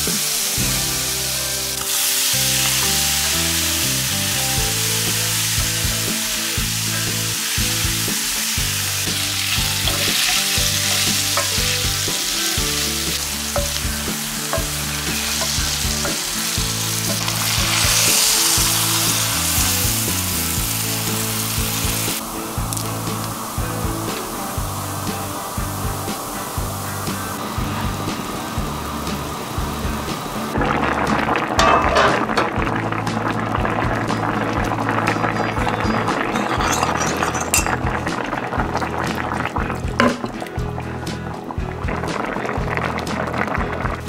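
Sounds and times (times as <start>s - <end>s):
oil sizzling in a pan: 0.0s - 44.0s
beer pouring: 7.1s - 27.7s, 30.5s - 44.0s.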